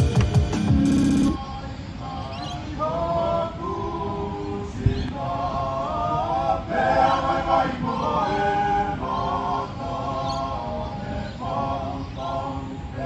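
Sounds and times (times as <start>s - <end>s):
voices singing in harmony: 1.0s - 13.0s.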